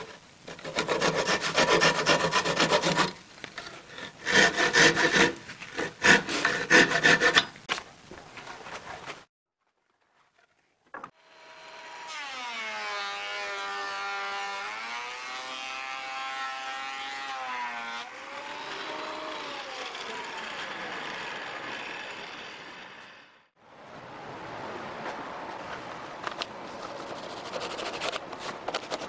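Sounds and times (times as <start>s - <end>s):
thickness planer motor whining: 11.2s - 23.3s.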